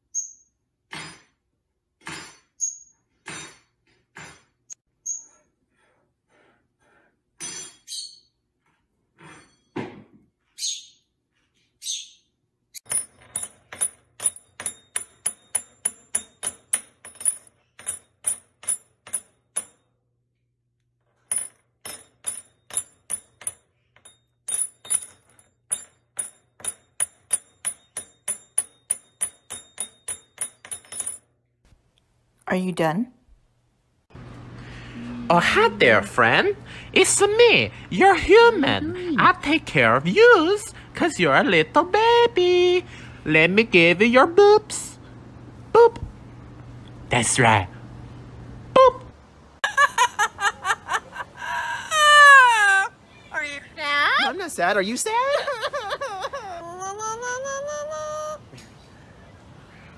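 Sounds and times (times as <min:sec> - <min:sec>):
bird chirping: 0:10.5 - 0:12.8
metal clinking on hard surface: 0:12.8 - 0:19.9, 0:21.2 - 0:31.4.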